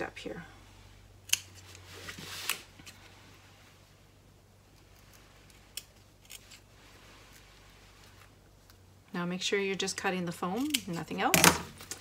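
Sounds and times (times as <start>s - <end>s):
scissors snipping foam: 10.6s - 11.6s.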